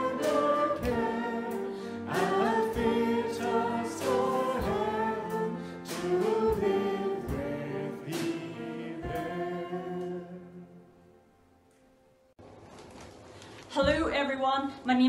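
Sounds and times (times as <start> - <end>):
voices singing a carol: 0.0 - 10.9.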